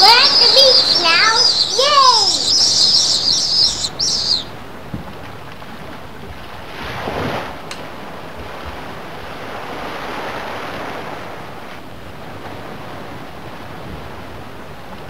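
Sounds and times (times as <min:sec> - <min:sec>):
waves washing onto a beach: 0:04.6 - 0:15.0.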